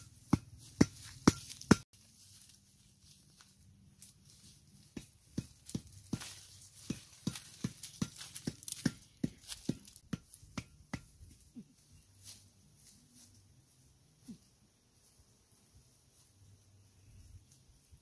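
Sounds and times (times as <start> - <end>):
footsteps crunching on dry leaves: 0.1 - 10.5
faint leaf rustles: 1.0 - 5.0, 11.5 - 18.0.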